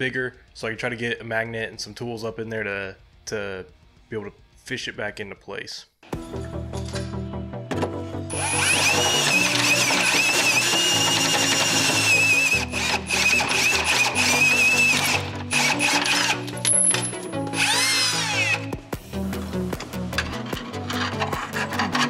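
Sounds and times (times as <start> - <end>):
cordless drill whining: 8.3 - 16.6, 17.4 - 18.8
background music with a beat: 18.6 - 22.0.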